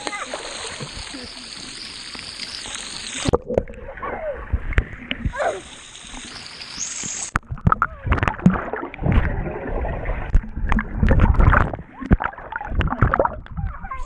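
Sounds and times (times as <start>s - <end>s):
swimmer splashing: 0.0s - 4.6s
muffled underwater gurgling: 0.0s - 14.0s
pool water splashing and sloshing: 0.0s - 14.0s.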